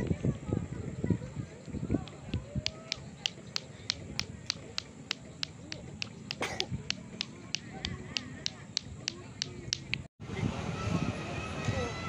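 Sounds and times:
sharp high clicks: 2.0s - 10.1s.

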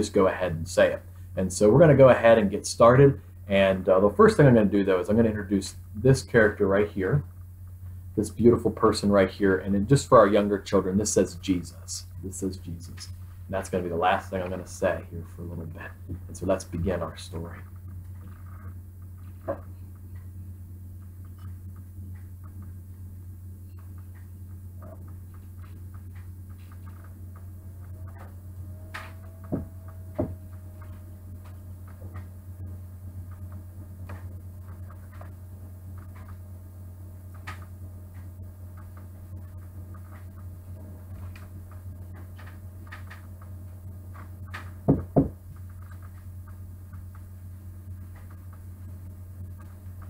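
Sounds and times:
low hum: 0.0s - 50.0s
faint ticking: 9.1s - 44.9s
ceramic figurines knocking on table: 44.8s - 45.4s.

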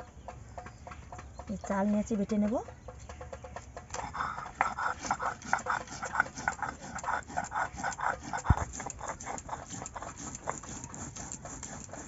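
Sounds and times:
stone grinding wet rice: 4.0s - 12.0s.

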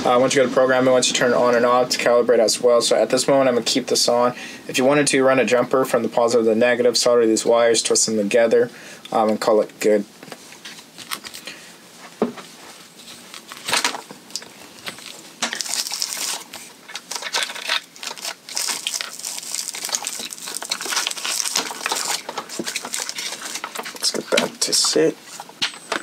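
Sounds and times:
wires crinkling and rustling: 7.9s - 26.0s.

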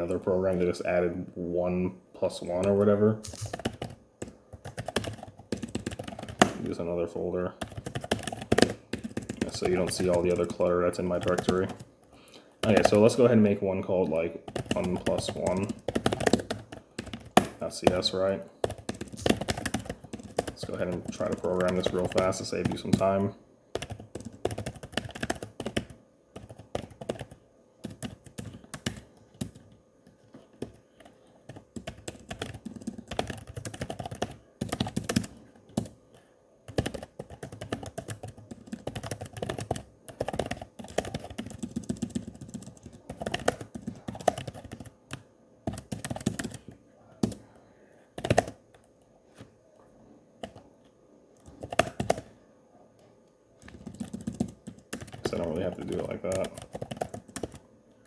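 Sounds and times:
typing on a keyboard: 2.6s - 6.7s, 7.6s - 11.9s, 12.6s - 13.2s, 14.4s - 29.7s, 30.6s - 36.0s, 36.7s - 47.4s, 48.2s - 48.6s, 51.4s - 52.3s, 53.6s - 57.7s.

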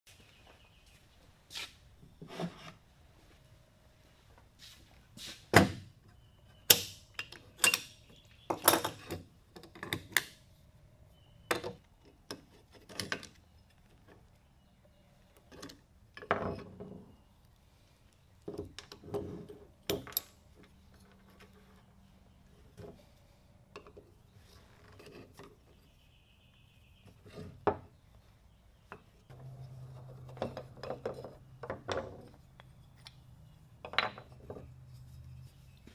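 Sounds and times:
metal clinks and knocks on wood: 28.9s - 32.4s, 33.8s - 34.7s.

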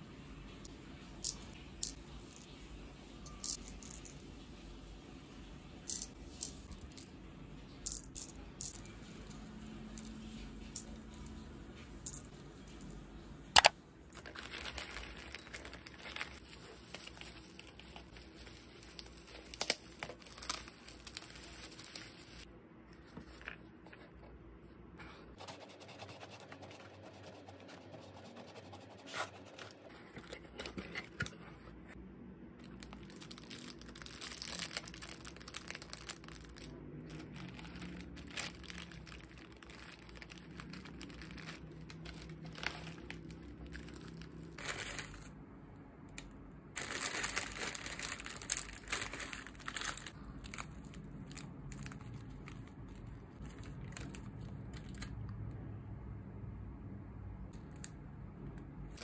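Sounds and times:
plastic bags crinkling: 13.6s - 22.5s, 32.6s - 45.3s, 46.7s - 55.2s.

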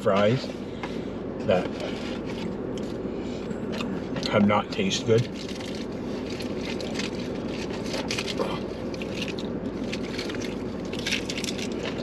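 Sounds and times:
low car cabin hum: 0.0s - 12.0s
paper wrappers rustling: 5.2s - 12.0s.

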